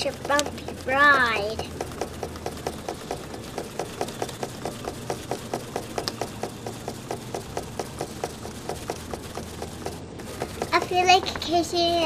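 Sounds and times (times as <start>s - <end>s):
cardboard box knocking and rattling: 0.0s - 11.6s.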